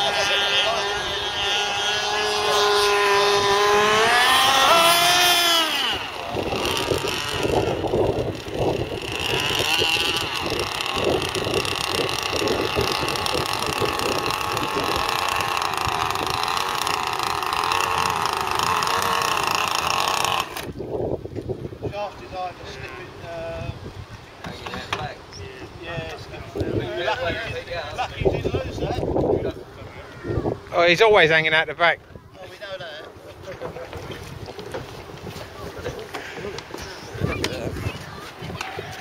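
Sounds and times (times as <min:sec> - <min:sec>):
two-stroke boat engine: 0:00.0 - 0:21.0, 0:33.1 - 0:39.0.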